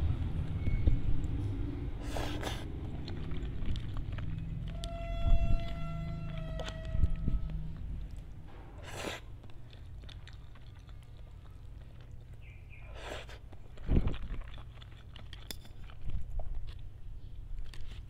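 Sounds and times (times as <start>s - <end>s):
chewing: 0.5s - 18.0s
slurping noodles: 2.0s - 2.8s, 8.8s - 9.3s, 12.9s - 13.5s.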